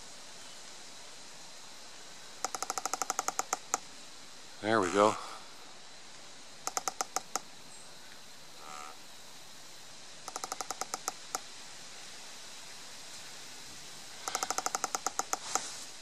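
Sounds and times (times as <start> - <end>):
tree trunk creaking: 2.4 - 3.8, 6.6 - 7.4, 10.2 - 11.4, 14.2 - 15.8.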